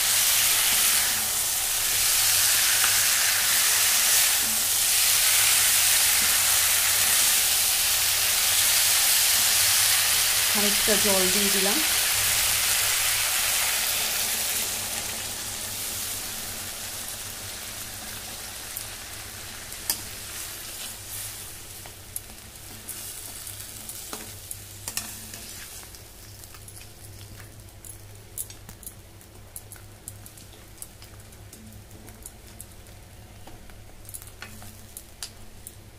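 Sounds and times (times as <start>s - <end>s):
food sizzling in a pan: 0.0s - 27.6s.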